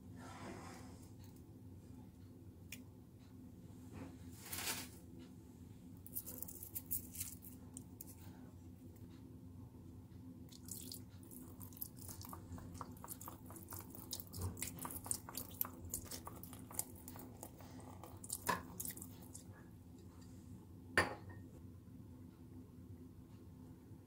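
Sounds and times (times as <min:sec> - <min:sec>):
vinegar dripping and spattering: 0:10.5 - 0:19.4.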